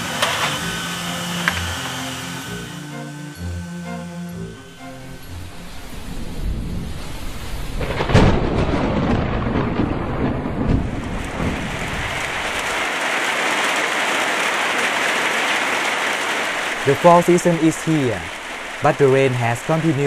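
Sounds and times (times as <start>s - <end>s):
heavy rain: 4.8s - 20.0s
thunder cracking and rumbling: 5.5s - 20.0s.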